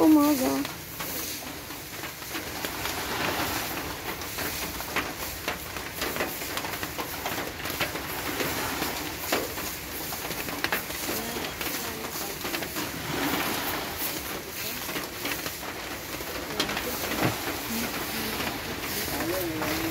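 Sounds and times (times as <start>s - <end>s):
waves breaking on sand beach: 0.0s - 19.9s.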